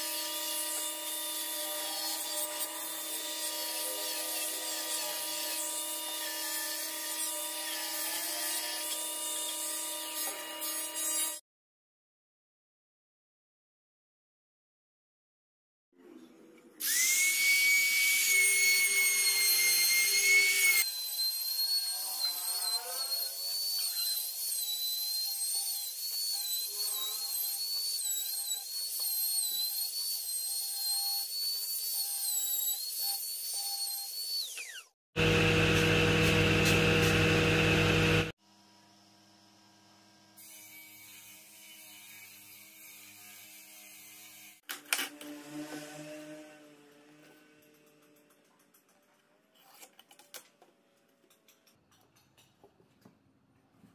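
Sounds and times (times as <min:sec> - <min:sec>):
router cutting wood: 0:16.8 - 0:30.2, 0:30.8 - 0:38.4, 0:45.0 - 0:47.2
trim router whining: 0:34.4 - 0:38.3.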